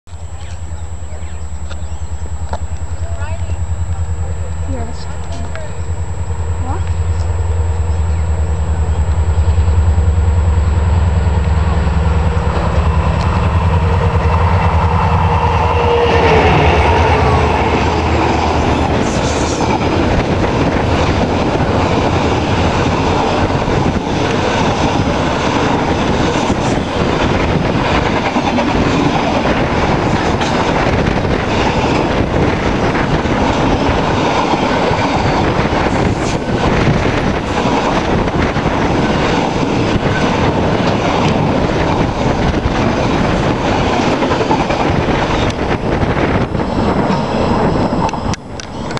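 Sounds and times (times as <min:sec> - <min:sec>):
locomotives droning: 0:00.1 - 0:48.9
wagons rattling over rails: 0:17.3 - 0:48.9.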